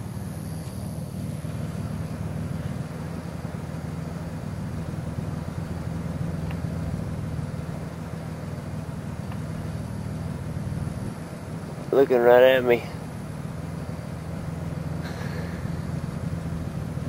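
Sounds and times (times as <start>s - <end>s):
low mechanical hum: 0.0s - 17.0s
faint ticks: 6.4s - 6.7s, 9.2s - 9.5s.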